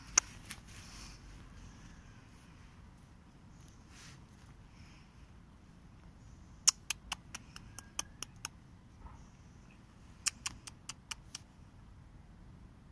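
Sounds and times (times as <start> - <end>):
sharp ticking clicks: 6.6 - 8.6, 10.2 - 11.4.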